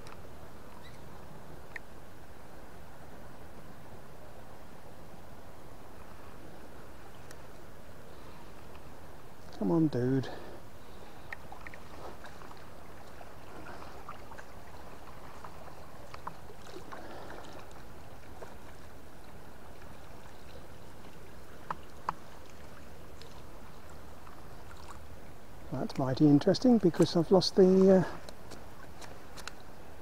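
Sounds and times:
river water rushing and gurgling: 0:00.0 - 0:30.0
light clicks: 0:28.2 - 0:29.6.

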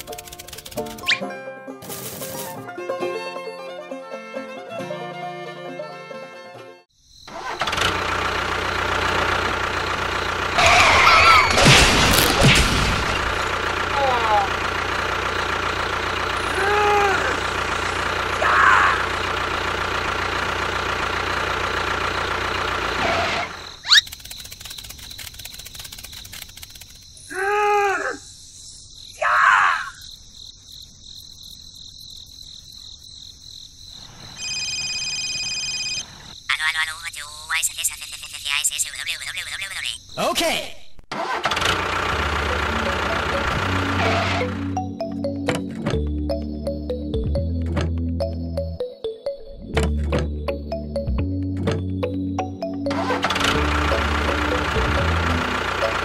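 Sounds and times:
small motor running: 0:00.0 - 0:01.0, 0:19.0 - 0:27.0, 0:52.9 - 0:56.0
crickets chirring: 0:00.0 - 0:01.1, 0:06.9 - 0:11.4, 0:19.0 - 0:41.0.

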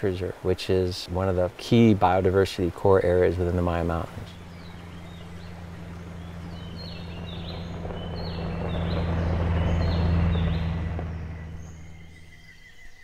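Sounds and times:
steady low hum: 0:03.0 - 0:12.4
bird chirping: 0:03.0 - 0:13.0
truck splashing through water: 0:03.6 - 0:12.3.

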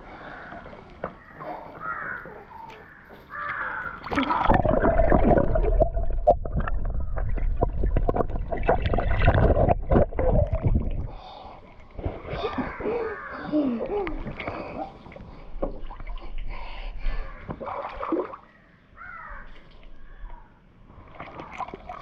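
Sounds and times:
water bubbling: 0:03.9 - 0:16.5
muffled underwater rumble: 0:04.4 - 0:12.8.

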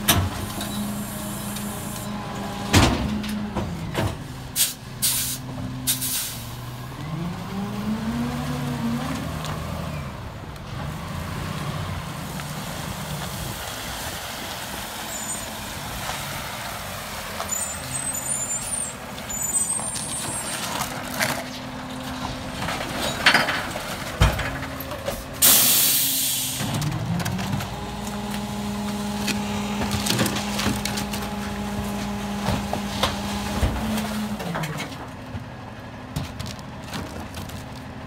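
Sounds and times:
diesel truck engine revving: 0:00.0 - 0:23.0, 0:23.6 - 0:36.9
air brakes hissing: 0:04.6 - 0:06.6, 0:25.4 - 0:26.8.

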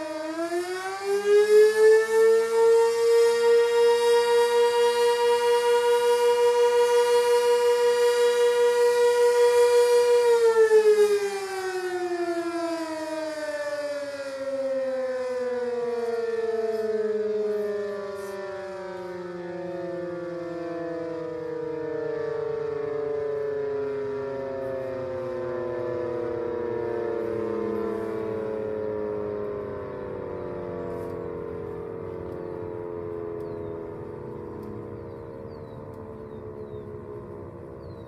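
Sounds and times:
warning siren winding down: 0:00.0 - 0:38.0.

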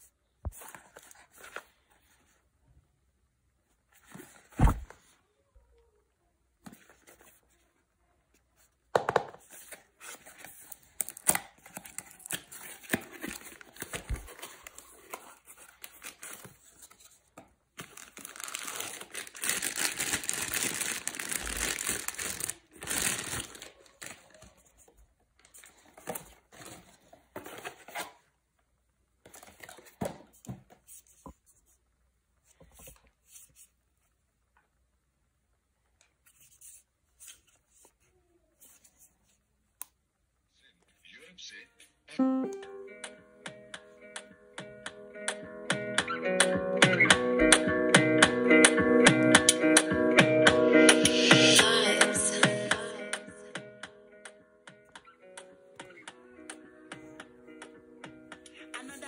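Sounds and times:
cardboard and paper rustling: 0:00.5 - 0:02.4, 0:03.8 - 0:05.2, 0:06.6 - 0:28.3.

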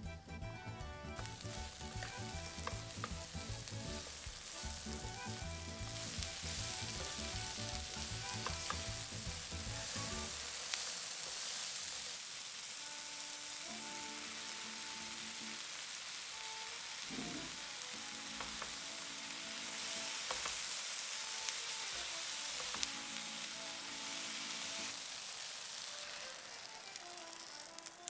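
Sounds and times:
soft background music: 0:00.0 - 0:10.5, 0:12.8 - 0:25.0
vegetables sizzling in oil: 0:01.1 - 0:28.0
spatula clicking against pan: 0:01.2 - 0:03.5, 0:06.3 - 0:09.2, 0:18.4 - 0:18.8, 0:20.2 - 0:20.7, 0:22.5 - 0:22.9.

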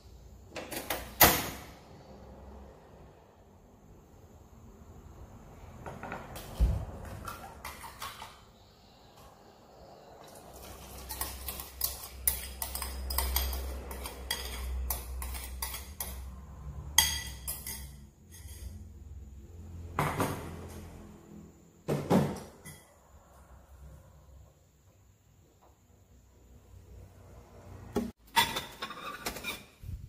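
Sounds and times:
metal spoon clinking against bowl: 0:10.8 - 0:16.3, 0:16.9 - 0:18.7
dishes clattering: 0:16.9 - 0:18.7, 0:28.3 - 0:29.8.

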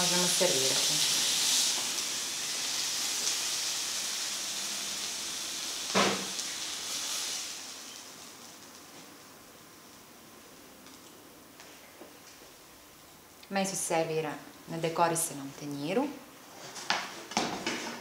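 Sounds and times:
meat sizzling in pan: 0:00.0 - 0:09.2.

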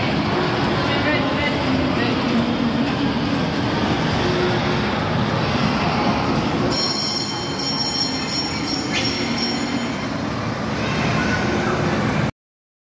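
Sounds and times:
toy train wheels rumbling on rails: 0:00.2 - 0:10.2.

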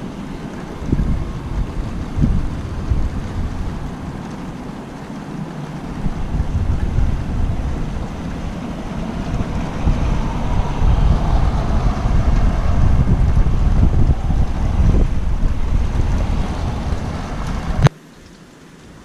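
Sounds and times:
wind buffeting microphone: 0:00.0 - 0:17.9.

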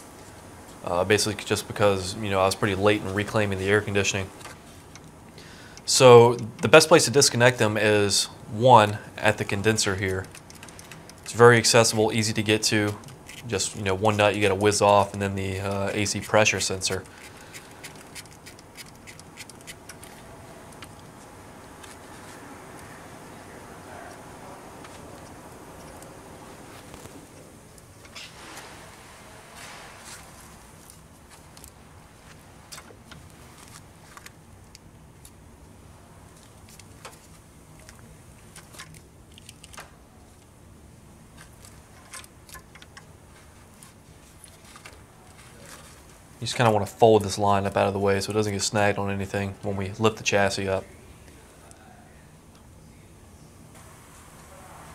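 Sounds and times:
faint steady background noise: 0:00.0 - 0:54.9
low steady hum: 0:00.0 - 0:54.9
clicks and clinks of fittings: 0:10.1 - 0:11.4.

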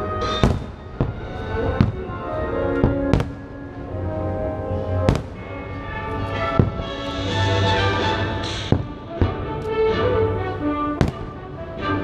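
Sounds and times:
music: 0:00.0 - 0:12.0
firework bangs: 0:00.2 - 0:02.2, 0:02.8 - 0:03.7, 0:05.0 - 0:09.6, 0:11.0 - 0:11.5.

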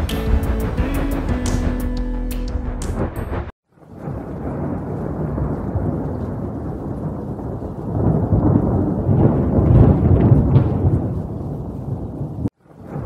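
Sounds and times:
wind buffeting microphone: 0:04.0 - 0:13.0.

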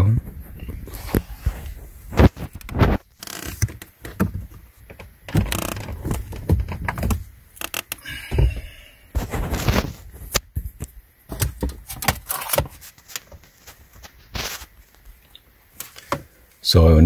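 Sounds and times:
cable knocking and scraping on plastic: 0:02.2 - 0:07.8.

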